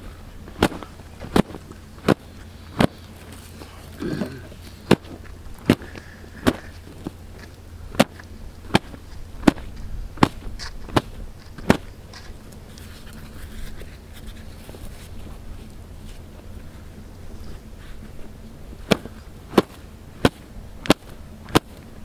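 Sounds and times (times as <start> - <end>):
cloth slapping bread: 0.4 - 11.9, 18.8 - 21.9.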